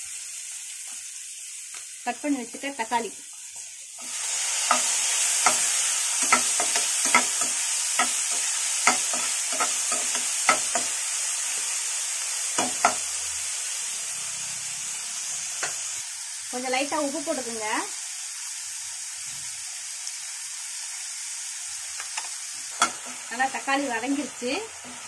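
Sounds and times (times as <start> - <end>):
tomatoes sizzling in hot oil: 0.0 - 25.0
steel spoon stirring and tapping pan: 3.6 - 11.0, 12.6 - 13.1, 22.0 - 23.2.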